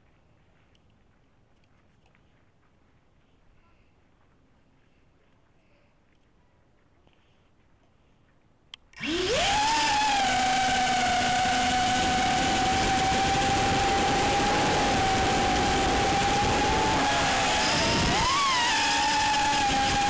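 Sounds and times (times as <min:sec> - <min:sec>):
drone motors arming click: 0:09.0 - 0:20.0
drone motors whining: 0:09.0 - 0:20.0.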